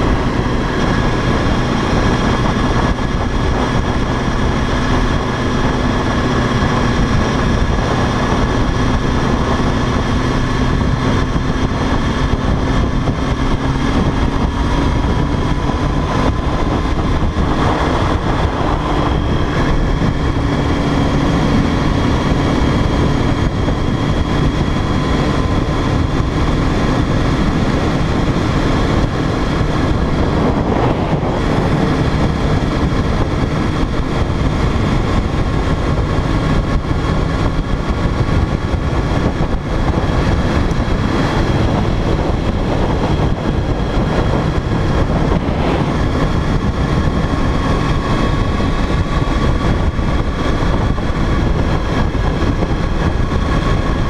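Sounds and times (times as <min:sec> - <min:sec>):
motorcycle engine whine: 0:00.0 - 0:54.0
wind rush on microphone: 0:00.0 - 0:54.0.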